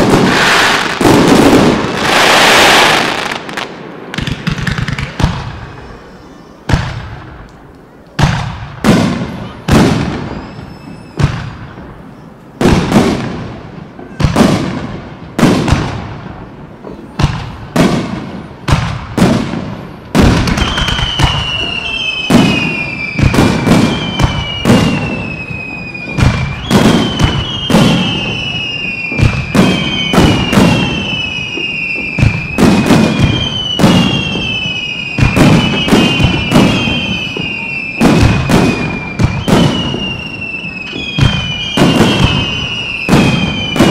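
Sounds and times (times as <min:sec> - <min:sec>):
high falling whistles: 0:10.2 - 0:11.3.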